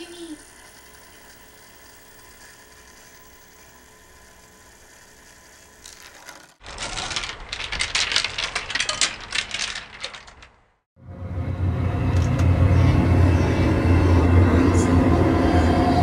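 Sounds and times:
mechanism rattling and clicking: 5.8 - 10.8.

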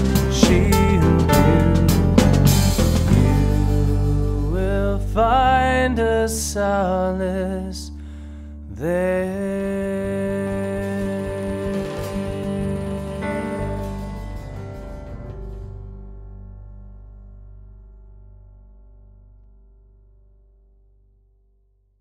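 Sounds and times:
person singing a hymn: 0.0 - 7.9, 8.7 - 14.5
guitar accompaniment: 0.0 - 17.0.

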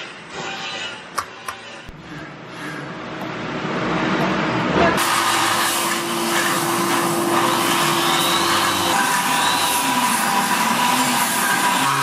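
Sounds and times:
angle grinder grinding metal: 5.0 - 12.0.

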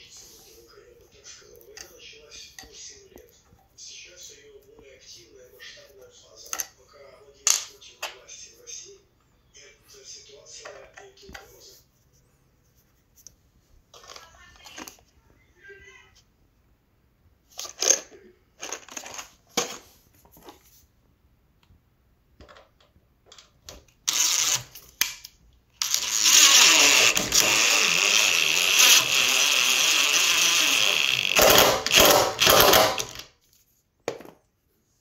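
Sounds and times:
cordless drill driving a screw: 24.1 - 24.7, 25.8 - 33.3.

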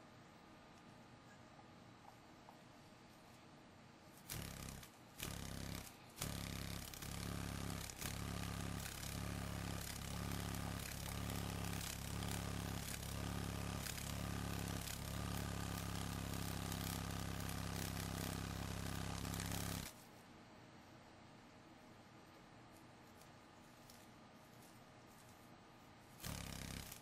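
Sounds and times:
beetle wings buzzing: 4.2 - 20.0, 26.2 - 27.0.

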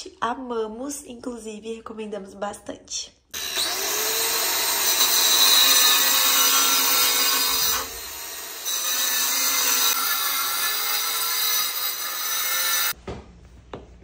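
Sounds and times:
angle grinder cutting tile: 3.4 - 13.0.

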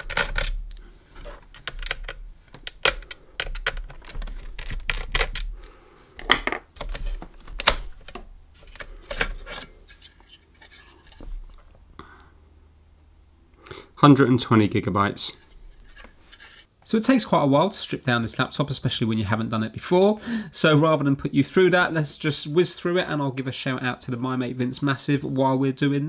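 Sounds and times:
plastic and metal clicks and scrapes: 0.0 - 11.6.

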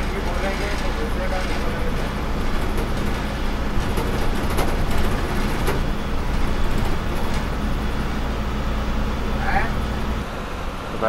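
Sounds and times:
faint clicks and rattles: 0.0 - 7.8
bus engine drone: 0.0 - 11.0
road noise: 0.0 - 11.0.

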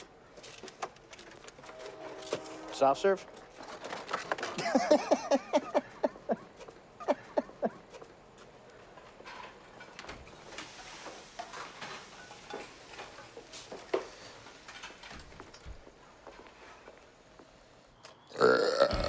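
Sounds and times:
man laughing: 4.6 - 7.9.

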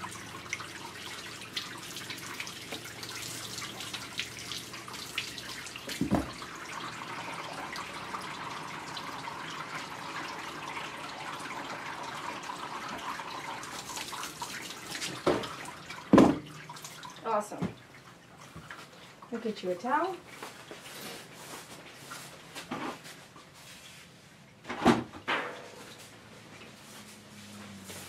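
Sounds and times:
water spraying and splashing on fur: 0.0 - 8.0, 13.6 - 16.0
water dripping into tub: 0.0 - 20.5
thump: 6.0 - 6.3, 16.1 - 16.4.

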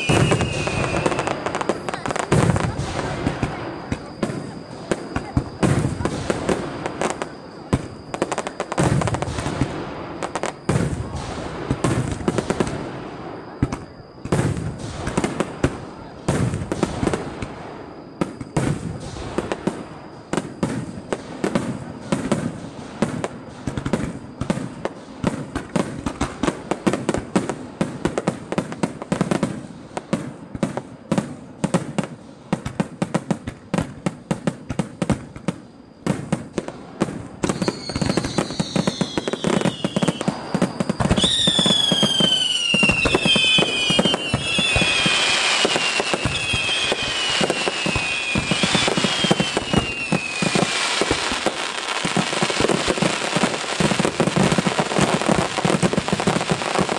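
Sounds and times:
fireworks crackling and popping: 0.0 - 56.9
firework shells bursting: 31.8 - 56.9.

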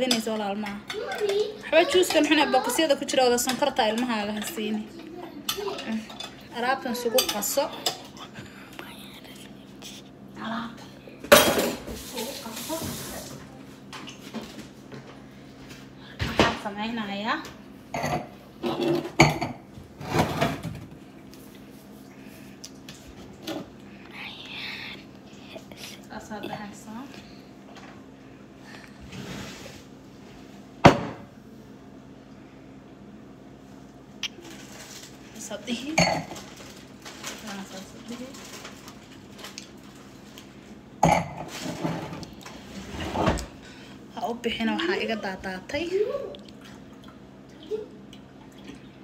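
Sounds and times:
wine glasses knocking on countertop: 30.8 - 31.3.

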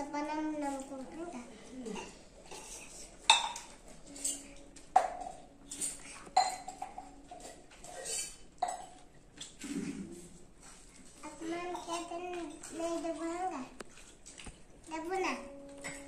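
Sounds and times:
steel plates and bowls clinking: 2.0 - 9.1.

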